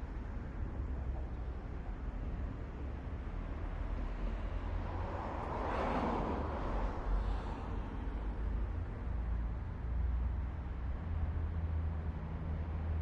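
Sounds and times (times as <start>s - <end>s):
low city rumble: 0.0s - 13.0s.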